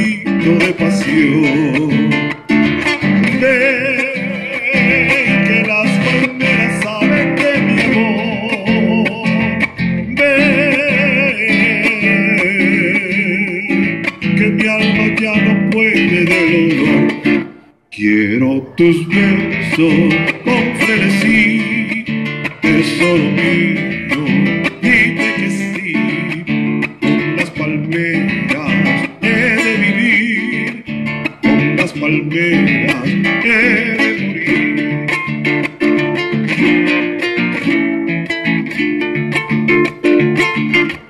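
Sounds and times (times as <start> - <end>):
classical guitar fingerpicking: 0.0 - 17.9, 18.6 - 41.0.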